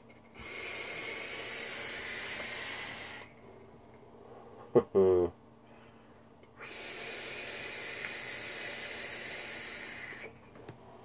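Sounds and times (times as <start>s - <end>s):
hiss of air through vape: 0.4s - 3.4s, 6.6s - 10.4s.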